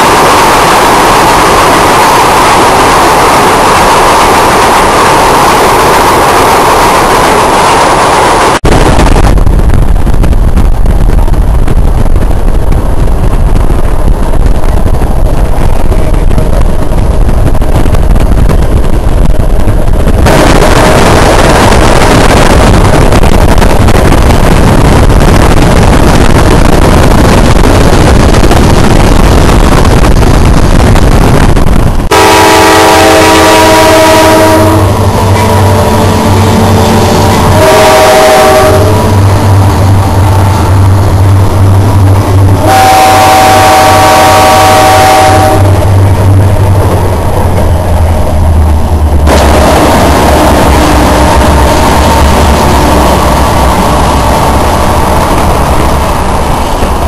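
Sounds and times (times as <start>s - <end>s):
freight train rumbling: 0.0s - 57.0s
locomotive air horn chord: 32.1s - 39.1s, 42.6s - 45.8s.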